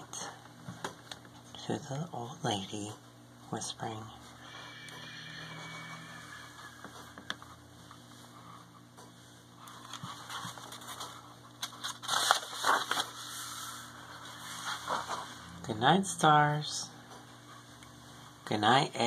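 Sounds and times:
paper pages rustling: 9.6s - 15.4s.

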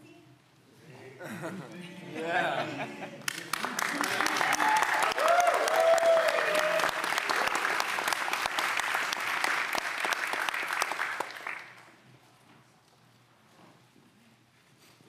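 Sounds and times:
crowd applauding: 3.2s - 12.0s.

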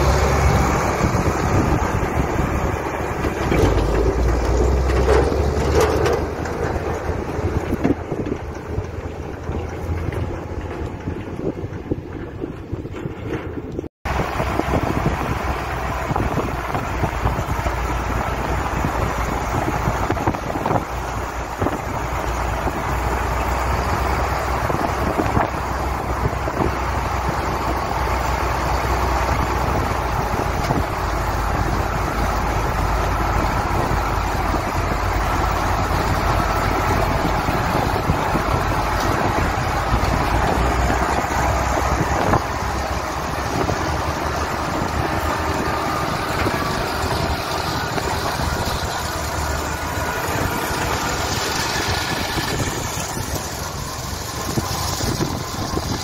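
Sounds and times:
farm machinery engines running: 0.0s - 56.0s
wind on microphone: 0.0s - 56.0s.

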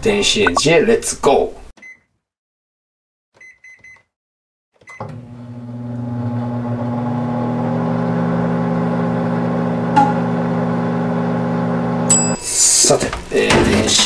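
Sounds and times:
microwave keypad beeping: 3.4s - 4.1s
microwave oven humming: 5.0s - 12.4s.

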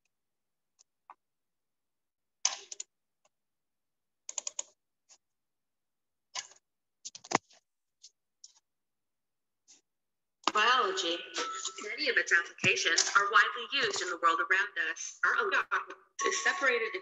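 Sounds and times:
mouse and keyboard clicking: 4.3s - 4.8s.

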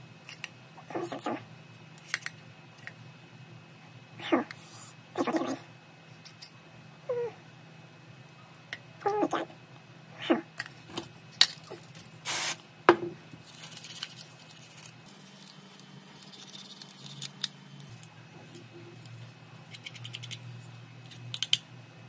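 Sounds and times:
short hiss: 12.2s - 12.6s.

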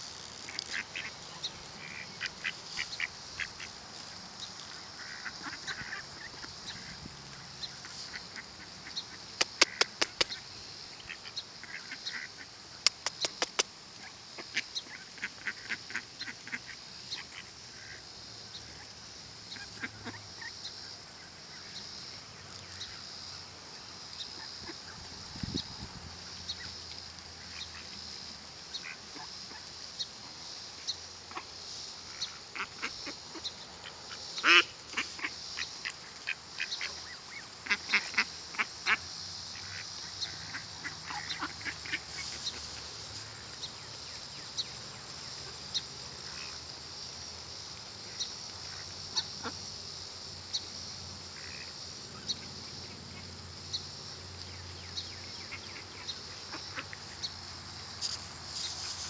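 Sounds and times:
ducks quacking: 0.7s - 3.8s, 4.8s - 7.0s, 7.8s - 10.4s, 19.5s - 20.6s, 32.2s - 39.0s, 39.6s - 42.7s.

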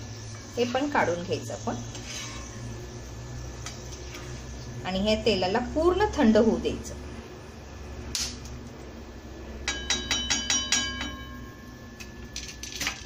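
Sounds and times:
spatula clinking on metal: 9.6s - 13.0s.

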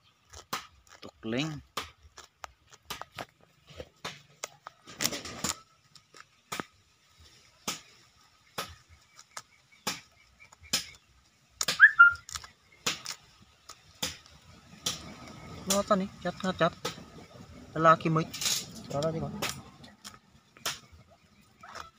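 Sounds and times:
whistle-like chirp: 11.7s - 12.3s.

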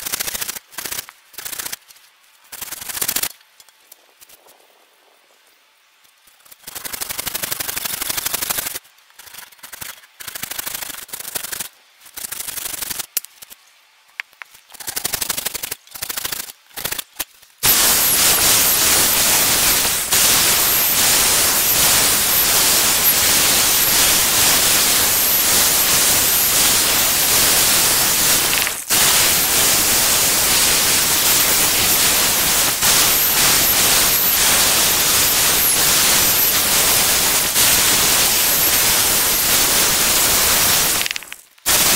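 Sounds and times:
electric drill boring into wood: 17.6s - 41.1s.

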